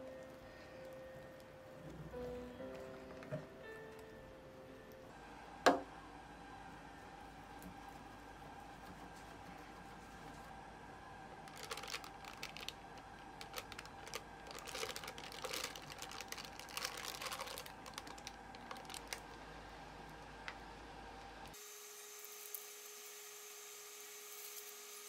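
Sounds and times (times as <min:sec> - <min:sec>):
faint steady hum: 0:00.0 - 0:25.0
plastic piping bag crinkling: 0:11.4 - 0:19.5.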